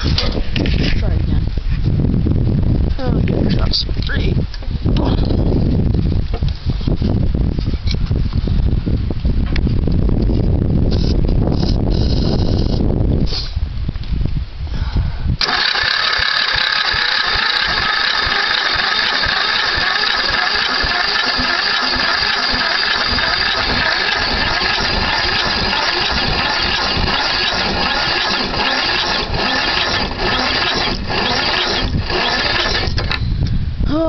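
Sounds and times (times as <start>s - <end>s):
electric starter cranking engine: 15.4s - 33.2s.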